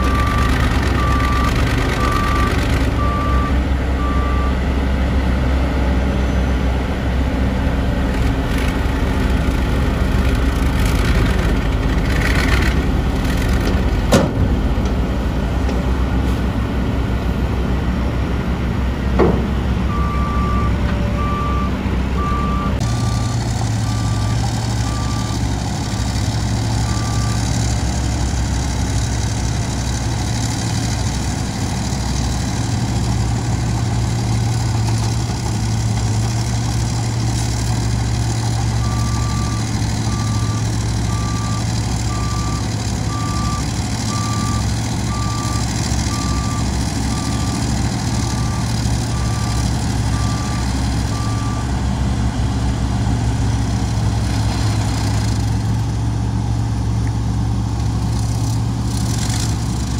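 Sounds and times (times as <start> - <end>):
reversing alarm beeping: 0.0 - 4.6, 19.9 - 25.5, 38.7 - 51.7
diesel truck engine running: 0.0 - 59.9.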